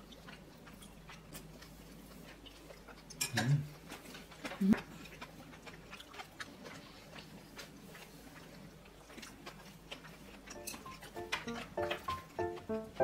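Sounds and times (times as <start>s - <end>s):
chopsticks clicking on bowls: 10.4s - 13.0s
short musical notes: 10.6s - 13.0s.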